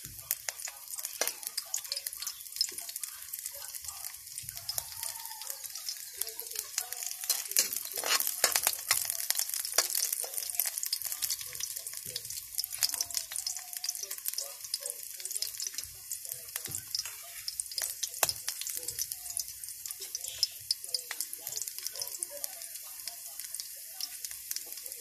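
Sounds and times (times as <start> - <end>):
garlic sizzling in hot oil: 0.0 - 25.0
metal ladle stirring in pan: 5.5 - 15.8, 16.6 - 18.7.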